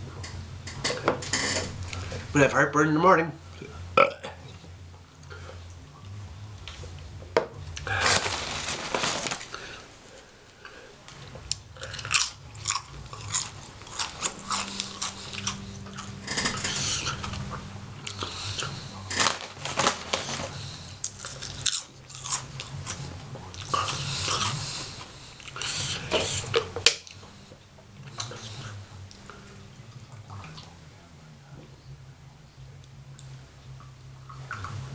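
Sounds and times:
chips crunching while chewed: 11.5s - 27.2s.

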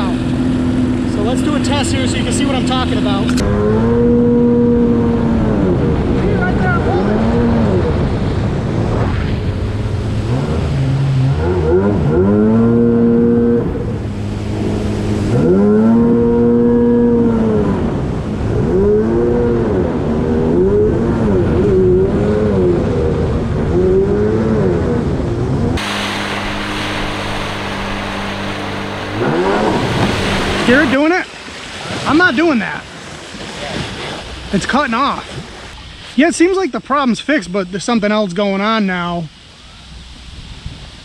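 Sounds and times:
jet ski engine revving: 0.0s - 35.8s
sudden hiss: 25.8s - 31.0s.

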